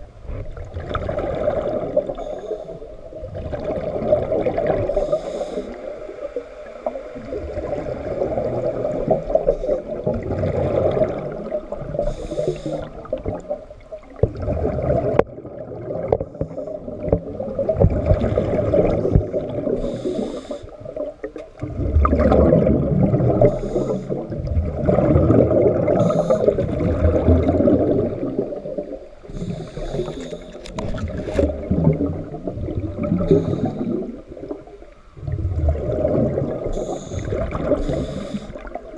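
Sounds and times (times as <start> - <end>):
exhaled air bubbling: 0.0 - 38.9
regulator inhale hiss: 2.1 - 3.0, 4.8 - 6.5, 9.3 - 10.1, 11.9 - 13.2, 16.3 - 17.0, 19.7 - 21.0, 23.4 - 24.4, 25.9 - 26.7, 29.2 - 30.8, 33.1 - 34.2, 36.6 - 38.8.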